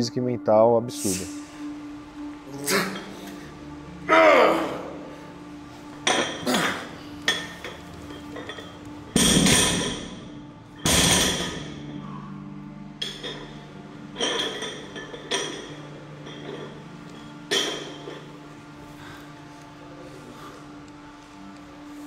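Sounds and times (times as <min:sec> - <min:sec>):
iron dumbbells clanking: 0:06.0 - 0:10.2, 0:10.8 - 0:11.8
heavy ringing metal impacts: 0:08.4 - 0:12.0.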